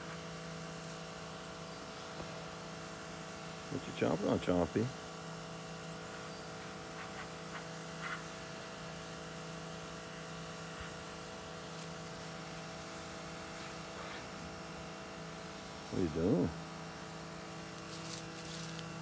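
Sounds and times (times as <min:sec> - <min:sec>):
steady low machine hum: 0:00.0 - 0:19.0.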